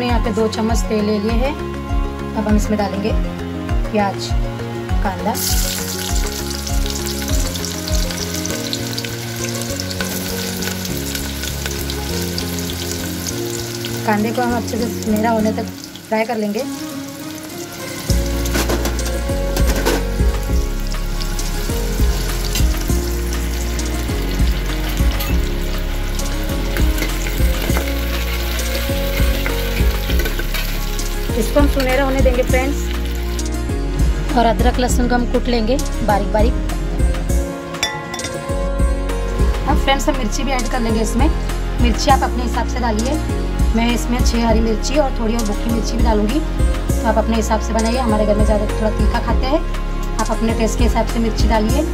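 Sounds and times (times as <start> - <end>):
onions sizzling in hot oil: 5.3 - 33.8.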